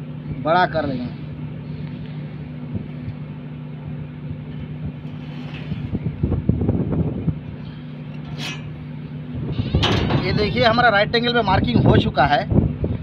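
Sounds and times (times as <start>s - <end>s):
low machine hum: 0.0s - 13.0s
steel square scraping and knocking: 8.2s - 8.8s.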